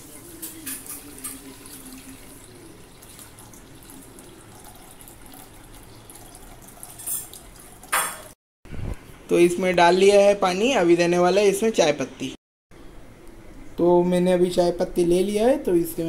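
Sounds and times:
water pouring into a metal pot: 0.0s - 8.4s.

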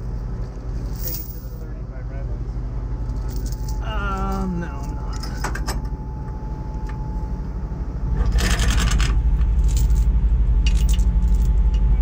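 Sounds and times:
steel chain clinking and rattling: 0.0s - 1.6s, 3.0s - 5.8s, 8.2s - 11.8s.

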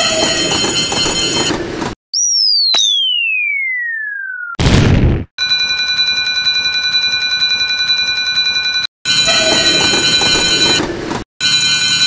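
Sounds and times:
railroad crossing bell ringing: 0.0s - 1.5s, 5.4s - 10.8s.

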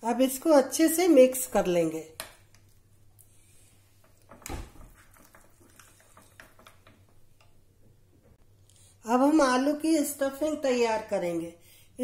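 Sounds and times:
paste stirred in a bowl: 5.0s - 7.2s.

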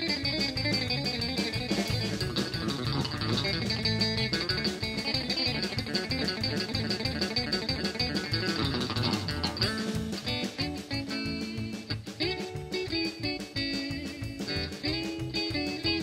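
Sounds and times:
electric guitar picked notes: 0.0s - 16.0s
steady drum beat: 0.0s - 16.0s.

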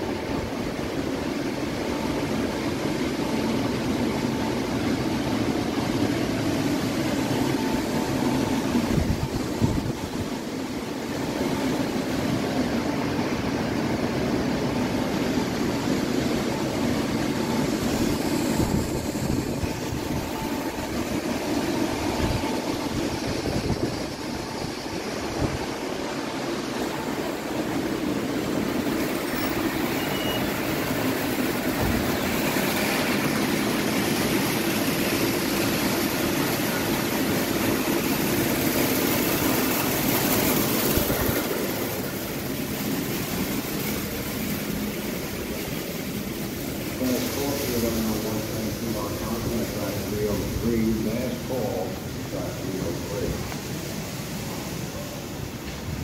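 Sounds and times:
ventilation and machinery drone: 0.0s - 56.0s
wind buffeting on microphone: 8.8s - 10.4s, 21.9s - 25.8s.

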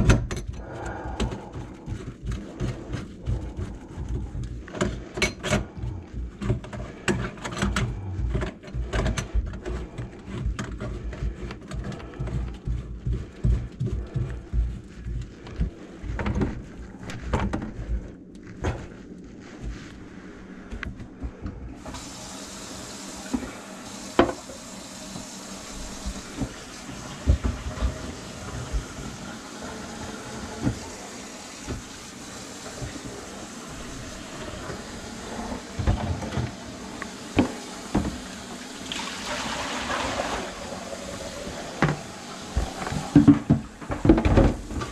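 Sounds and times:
tap water running into sink: 21.8s - 44.9s.

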